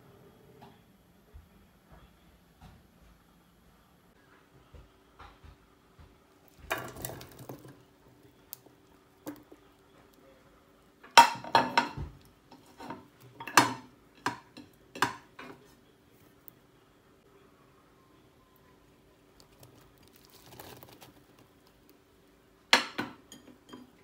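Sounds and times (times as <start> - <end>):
dishes and cutlery clinking: 11.0 - 15.7, 22.8 - 24.0.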